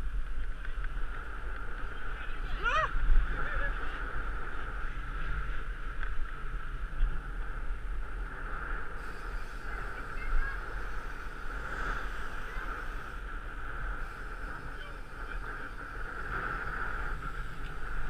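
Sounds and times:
wind rumbling on microphone: 0:00.0 - 0:18.0
steady mid-pitched buzz: 0:03.3 - 0:18.0.

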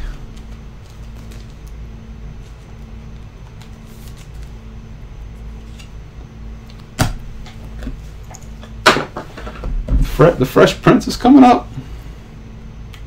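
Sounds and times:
low steady hum: 0:00.0 - 0:13.0
trading card packaging handled: 0:00.3 - 0:01.8, 0:02.4 - 0:04.6.

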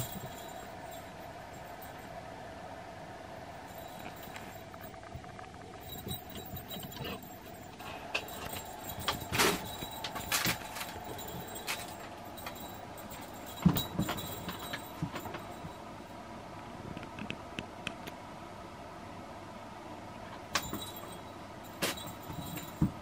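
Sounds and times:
faint hum: 0:00.0 - 0:23.0
fabric tunnel rustling: 0:08.0 - 0:15.0.

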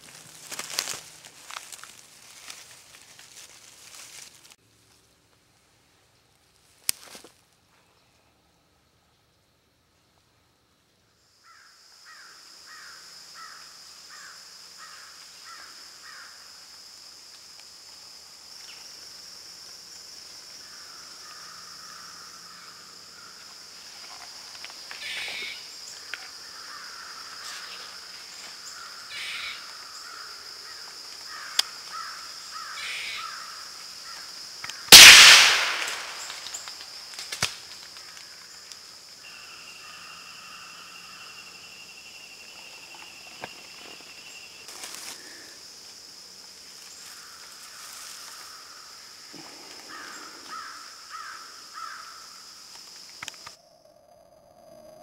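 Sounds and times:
high insect drone: 0:00.0 - 0:04.6, 0:08.4 - 0:55.0
short calls: 0:34.8 - 0:36.7
rifle shot echoing: 0:34.9 - 0:36.6.

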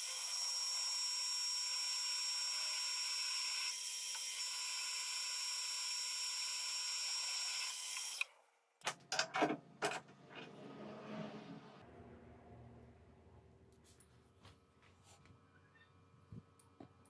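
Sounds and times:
drilling machine motor whine: 0:00.0 - 0:08.2.

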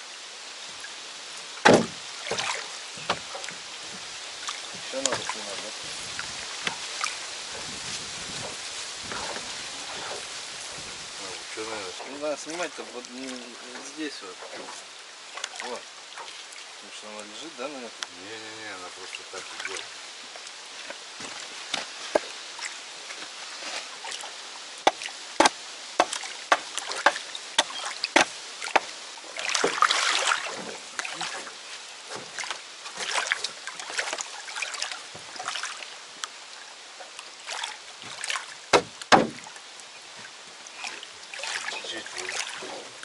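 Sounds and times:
heavy thumps: 0:01.6 - 0:02.0, 0:38.7 - 0:39.5
knocks and clatter in a boat: 0:01.6 - 0:04.1, 0:04.7 - 0:06.8, 0:07.5 - 0:10.9, 0:24.9 - 0:28.9, 0:38.0 - 0:39.5.

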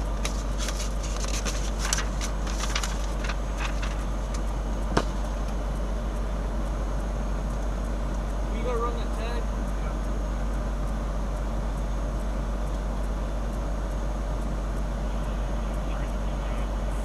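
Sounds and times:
semi truck idling: 0:00.0 - 0:17.0
paper rustling: 0:00.1 - 0:04.4.

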